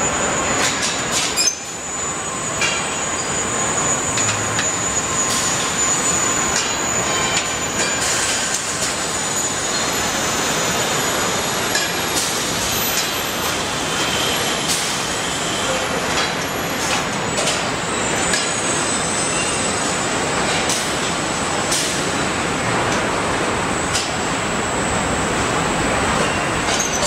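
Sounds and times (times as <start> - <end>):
thin high whine: 0.0 - 11.3
factory machinery din: 0.0 - 27.0.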